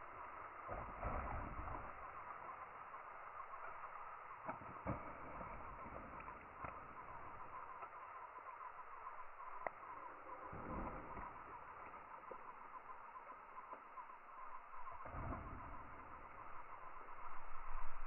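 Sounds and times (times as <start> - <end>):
sharp clicks: 9.4 - 10.0.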